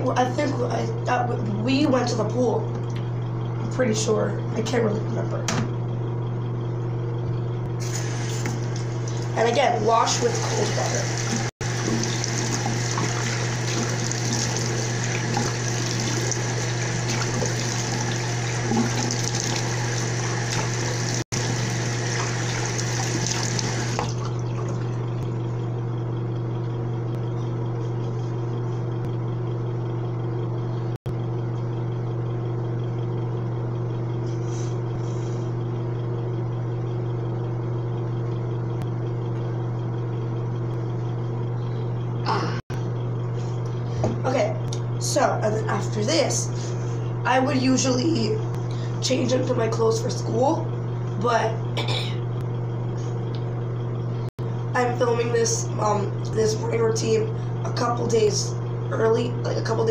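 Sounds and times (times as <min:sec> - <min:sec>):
faucet running: 0:07.8 - 0:25.2
water splashing on face: 0:10.2 - 0:25.2.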